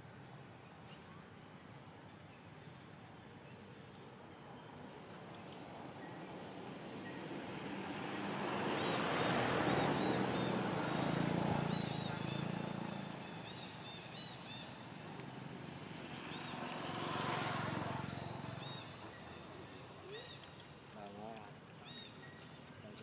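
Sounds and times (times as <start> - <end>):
motor vehicle passing: 6.3 - 20.2.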